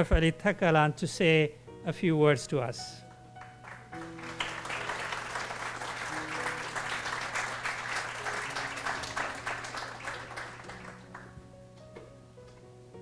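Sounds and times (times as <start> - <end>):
soft background music: 0.0 - 13.0
audience applauding: 3.4 - 11.4.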